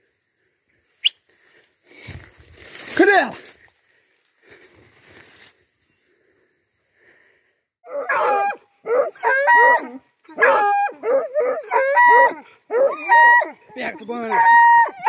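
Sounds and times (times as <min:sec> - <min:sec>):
dogs baying and barking: 0:07.9 - 0:15.0.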